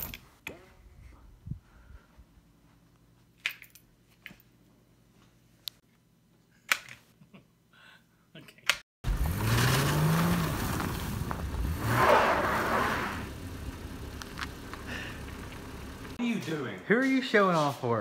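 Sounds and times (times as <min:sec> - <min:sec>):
car engine revving: 0:09.0 - 0:16.2
tyres spinning in snow: 0:09.0 - 0:16.2.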